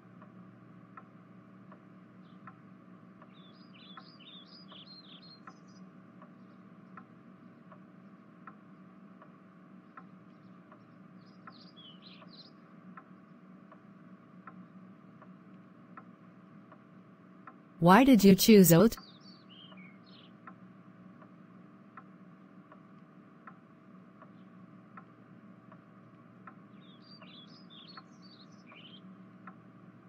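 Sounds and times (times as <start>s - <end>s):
soft regular tick: 0.9s - 1.1s.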